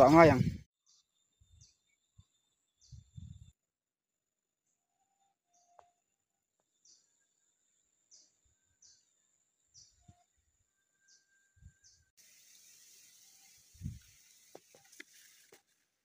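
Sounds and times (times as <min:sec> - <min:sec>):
faint high bird chirps: 0:00.8 - 0:03.6, 0:04.8 - 0:06.1, 0:06.7 - 0:14.2
steady hiss: 0:12.2 - 0:15.8.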